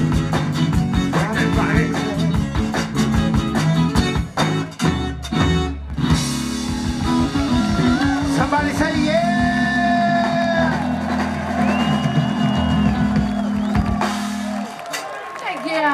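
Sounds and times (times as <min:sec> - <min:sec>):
live band playing: 0:00.0 - 0:15.9.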